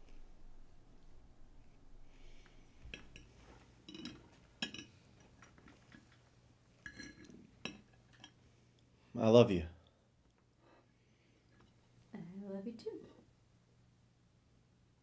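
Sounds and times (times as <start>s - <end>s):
cutlery clinking on plate: 2.9s - 6.1s, 6.8s - 8.4s.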